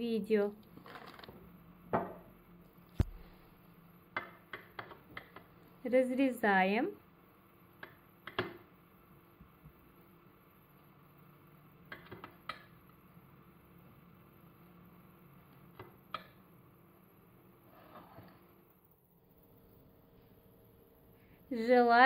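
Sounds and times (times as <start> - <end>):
steady low hum: 1.5 - 4.1.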